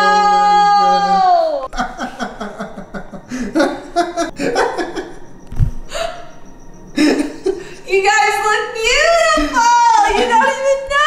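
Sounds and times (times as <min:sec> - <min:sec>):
woman laughing: 0:01.7 - 0:05.2, 0:09.3 - 0:11.0
low thump: 0:05.4 - 0:05.8.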